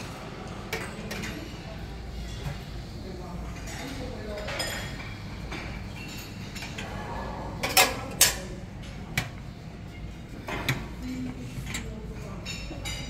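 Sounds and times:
crockery and cutlery clattering: 3.4 - 9.3, 10.4 - 13.0.

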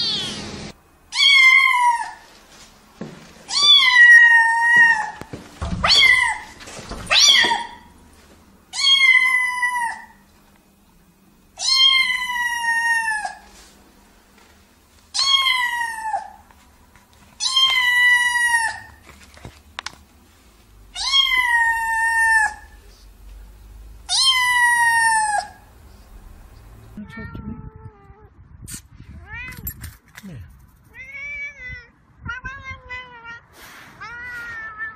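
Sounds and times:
cat meowing loudly: 0.0 - 0.4, 1.1 - 2.2, 3.5 - 7.9, 8.7 - 10.2, 11.6 - 13.5, 15.1 - 16.4, 17.4 - 19.0, 20.9 - 22.8, 24.1 - 25.6, 30.9 - 33.4, 34.0 - 34.9.

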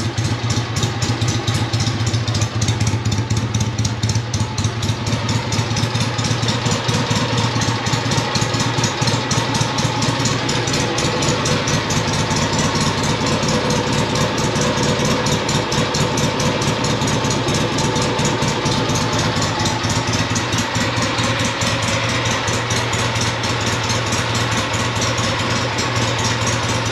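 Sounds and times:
motorcycle engine idling: 0.0 - 26.9.

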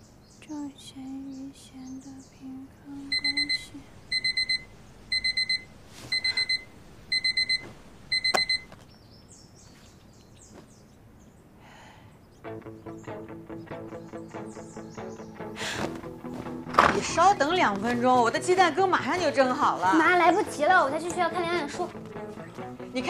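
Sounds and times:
alarm switch click: 3.1 - 8.7
digital alarm clock beeping: 3.1 - 8.7.

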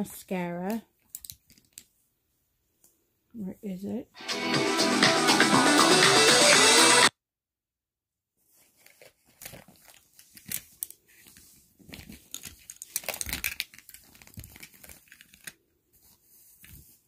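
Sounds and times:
packaging crinkling and rustling: 8.5 - 17.0.

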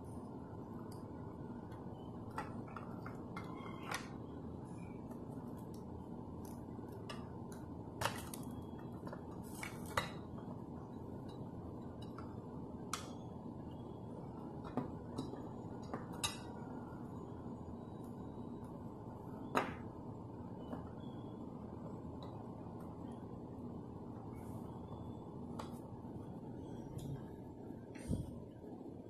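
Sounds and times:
low room hiss: 0.0 - 29.0.

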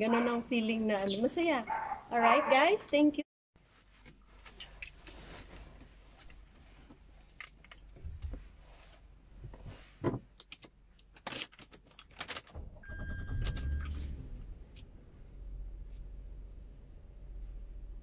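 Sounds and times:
keys and seatbelt jangling: 7.2 - 8.1, 10.4 - 12.5
car engine rumbling: 12.5 - 18.0.

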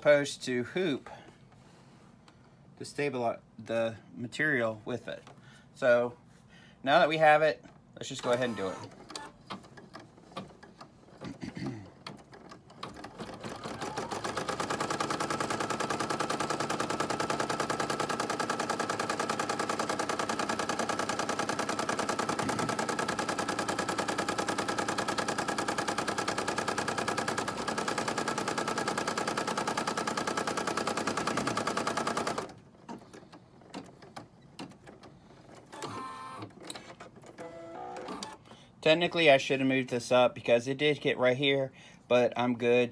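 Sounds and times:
embroidery machine needle clatter: 12.0 - 36.0.

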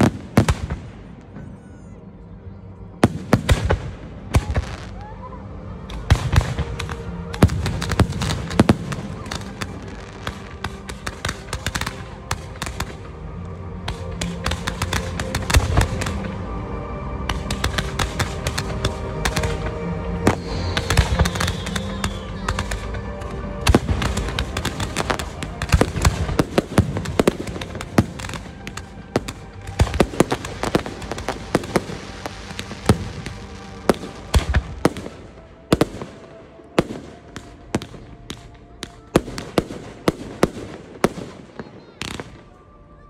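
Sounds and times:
fireworks bangs and pops: 5.9 - 13.1, 13.8 - 16.3, 17.3 - 23.0, 23.6 - 36.2.

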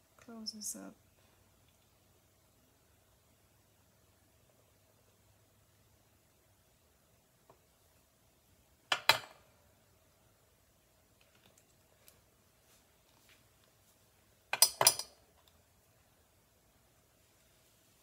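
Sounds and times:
metal pliers clinking on surface: 14.5 - 15.2.

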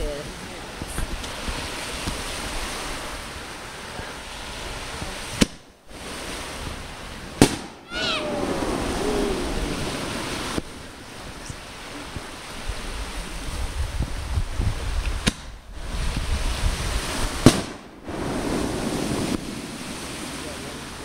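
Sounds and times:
steady rushing noise: 0.0 - 21.0
wind rumble on microphone: 0.0 - 21.0
firework bangs: 4.6 - 12.4, 14.6 - 20.5.

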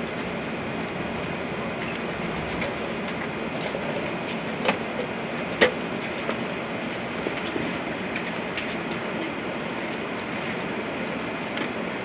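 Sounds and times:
airplane cabin noise: 0.0 - 12.0.

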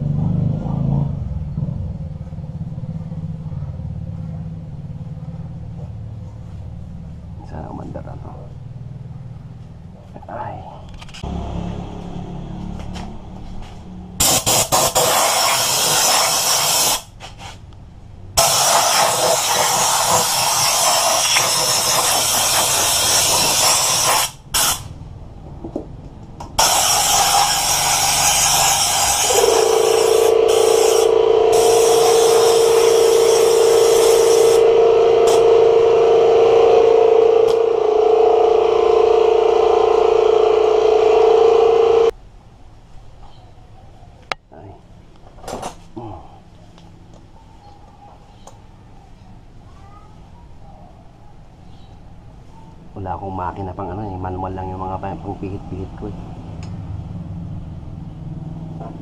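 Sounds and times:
compressed air hissing: 14.2 - 17.6, 18.4 - 24.9, 26.6 - 35.4
steady tone: 26.6 - 42.2.

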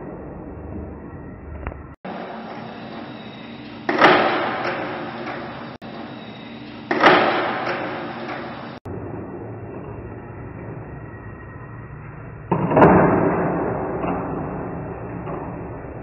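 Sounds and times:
skateboard wheels rolling on concrete: 0.0 - 8.8.

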